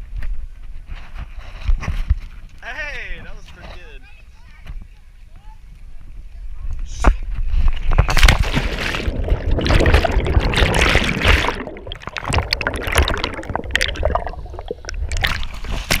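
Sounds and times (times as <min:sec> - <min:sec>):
underwater air bubbles churning: 0:07.9 - 0:16.0.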